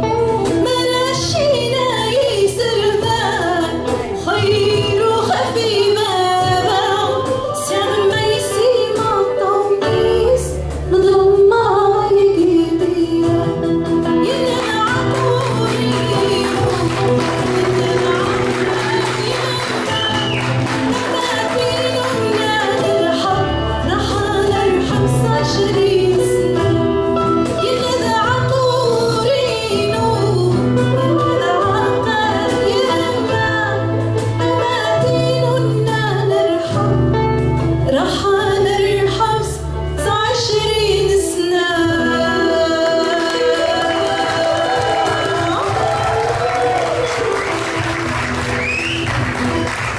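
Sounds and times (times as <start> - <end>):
woman singing: 0.0 - 47.9
small band playing: 0.0 - 49.9.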